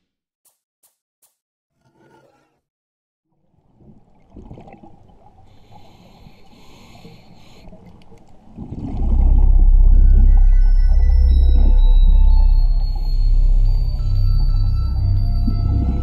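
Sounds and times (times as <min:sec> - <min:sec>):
low watery rumble: 0:03.4 - 0:16.0
deep bass drone: 0:08.7 - 0:16.0.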